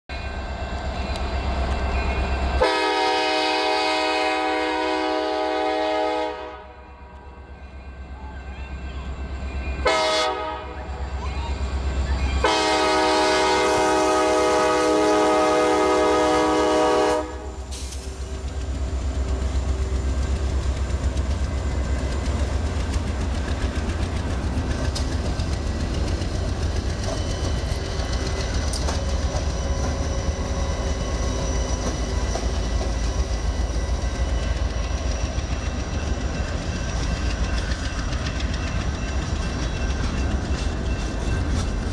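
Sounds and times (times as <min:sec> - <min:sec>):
locomotive horn: 0:02.6 - 0:07.5, 0:09.8 - 0:11.1, 0:12.3 - 0:17.9
locomotives rumbling past: 0:07.4 - 0:41.9
wheels clacking over rail joints: 0:17.9 - 0:41.9.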